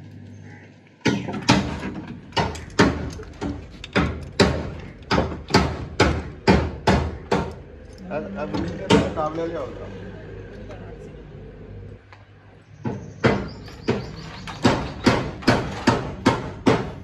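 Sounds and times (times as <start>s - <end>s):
sharp knocks on metal: 1.0s - 7.6s, 8.8s - 9.2s, 12.8s - 17.0s.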